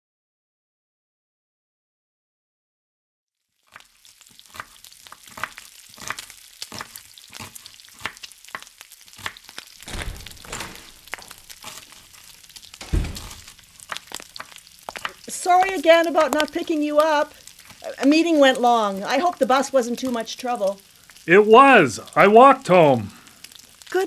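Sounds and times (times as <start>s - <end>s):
food sizzling in frying pan: 3.4s - 24.0s
dull low thump: 9.9s - 11.6s, 12.8s - 13.5s.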